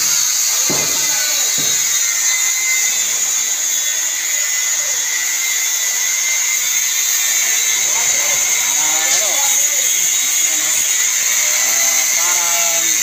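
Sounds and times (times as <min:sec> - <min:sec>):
angle grinder cutting steel: 0:00.0 - 0:13.0.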